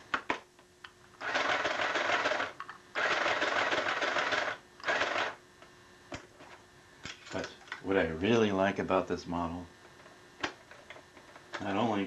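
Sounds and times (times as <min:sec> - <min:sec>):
sewing machine running: 0:01.2 - 0:05.4.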